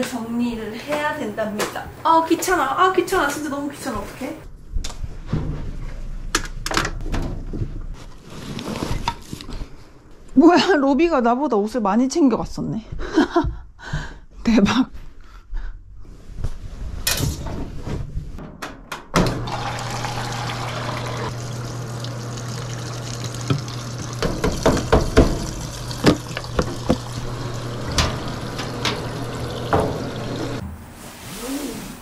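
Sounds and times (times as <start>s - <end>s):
washing machine filling with water: 19.3s - 30.6s
knocks and clatter: 24.2s - 27.2s.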